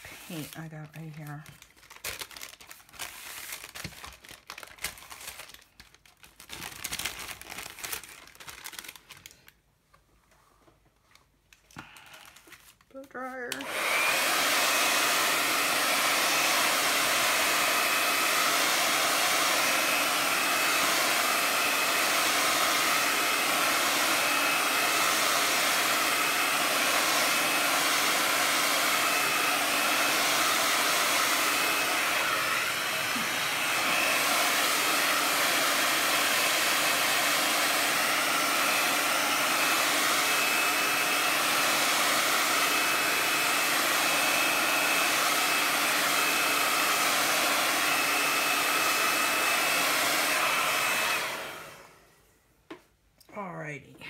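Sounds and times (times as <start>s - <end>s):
hair dryer blowing: 0.0s - 1.6s, 11.9s - 52.9s.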